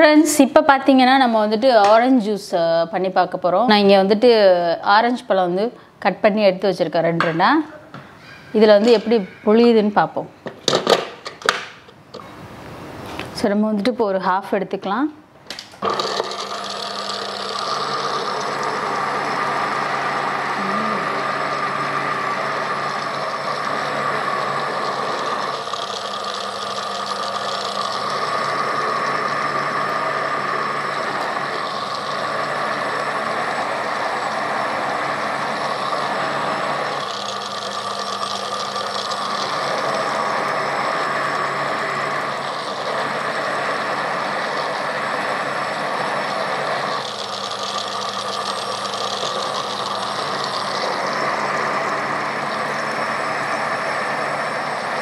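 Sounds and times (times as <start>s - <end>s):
food processor motor running: 15.8s - 55.0s.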